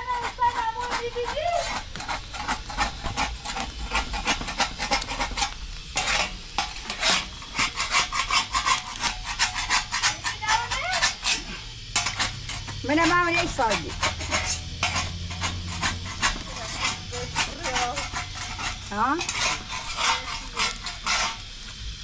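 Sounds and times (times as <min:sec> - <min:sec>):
metal spatula scraping griddle: 0:00.0 - 0:22.0.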